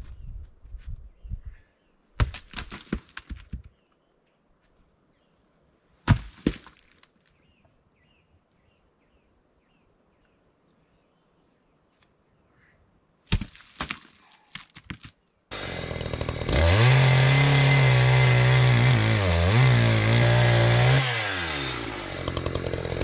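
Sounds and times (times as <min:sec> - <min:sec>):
logs knocking and thudding: 0:02.2 - 0:03.7, 0:06.1 - 0:07.0, 0:13.3 - 0:15.2.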